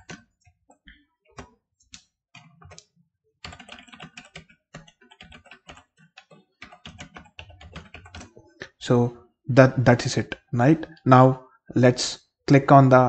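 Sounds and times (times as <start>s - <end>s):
computer keyboard typing: 0.0s - 8.6s.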